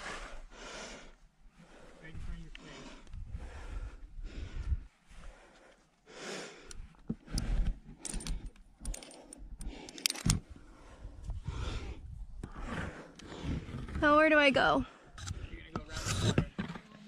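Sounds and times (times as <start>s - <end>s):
climber breathing: 0.0s - 16.4s
climbing hardware clinking: 7.5s - 10.4s.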